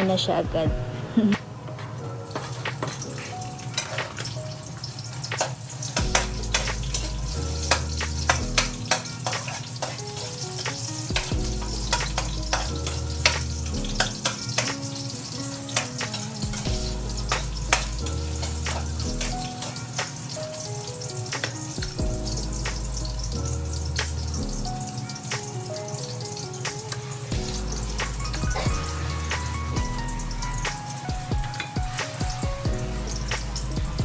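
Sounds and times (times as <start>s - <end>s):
garlic and onion sizzling in oil: 1.2s - 34.0s
metal spatula scraping wok: 2.3s - 4.4s, 5.3s - 10.9s
background music with bass line: 6.0s - 8.9s, 11.1s - 14.3s, 16.4s - 19.5s, 21.8s - 24.9s, 27.3s - 34.0s.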